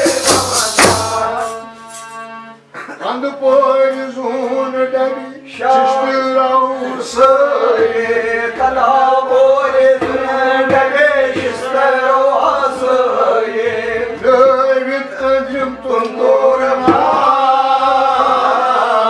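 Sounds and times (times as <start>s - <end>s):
hand drum beats: 0.0s - 1.6s, 8.5s - 12.1s, 16.8s - 17.6s
men chanting together: 0.0s - 1.7s, 4.6s - 19.0s.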